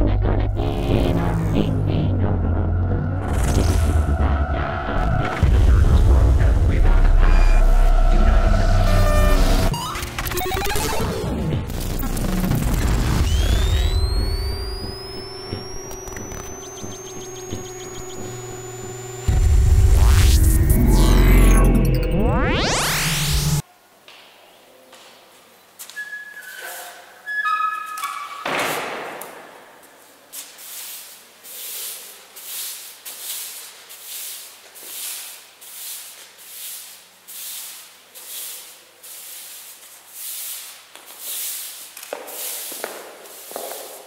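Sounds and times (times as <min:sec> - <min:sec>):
loud whoosh: 0:00.0 - 0:09.7
broom sweeping a tiled floor: 0:29.8 - 0:44.0.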